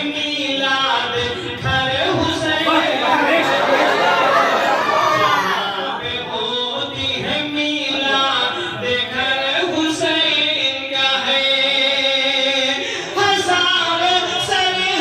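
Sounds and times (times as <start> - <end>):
man chanting melodically: 5.7 - 15.0.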